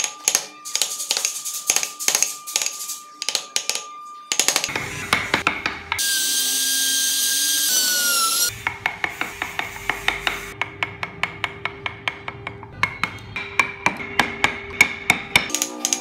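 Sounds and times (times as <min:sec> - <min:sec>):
power tool hiss and whine: 0:00.0 - 0:10.6.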